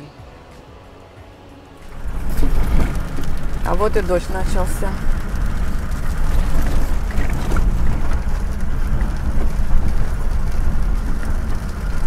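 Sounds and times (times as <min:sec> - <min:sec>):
vehicle engine and tyres rumbling: 0:00.0 - 0:12.0.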